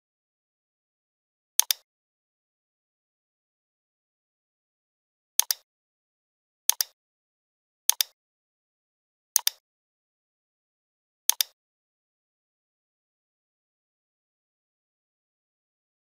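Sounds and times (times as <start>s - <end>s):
computer mouse clicks: 1.6s - 1.9s, 5.4s - 5.6s, 6.7s - 7.0s, 7.9s - 8.2s, 9.4s - 9.6s, 11.3s - 11.6s.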